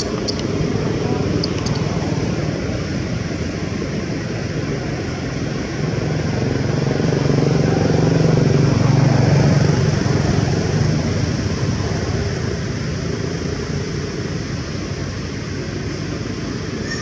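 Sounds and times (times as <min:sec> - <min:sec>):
vehicle engine passing: 0:04.4 - 0:15.5.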